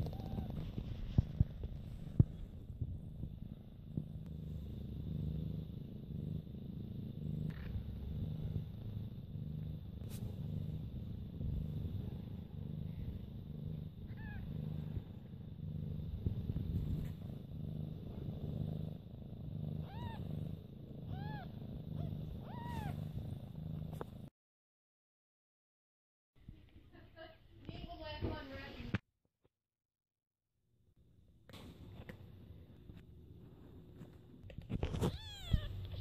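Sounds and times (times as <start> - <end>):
cat purring: 0.0 - 24.3, 31.5 - 36.0
kitten mewing: 14.1 - 14.5, 19.8 - 20.2, 21.1 - 23.0, 34.8 - 36.0.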